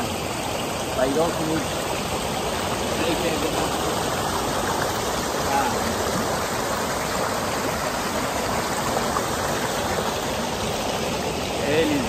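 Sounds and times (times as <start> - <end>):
creek water rushing over rocks: 0.0 - 12.0.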